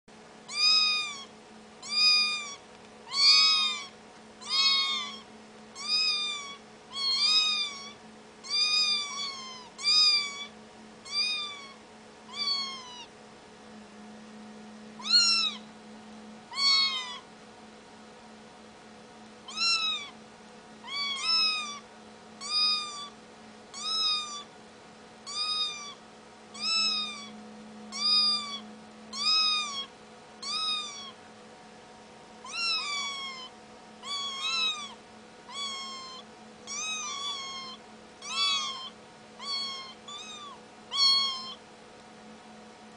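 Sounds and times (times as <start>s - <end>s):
kittens meowing: 0.5s - 13.1s, 15.0s - 15.7s, 16.5s - 17.3s, 19.5s - 20.2s, 20.8s - 24.5s, 25.2s - 26.0s, 26.6s - 31.2s, 32.4s - 41.6s.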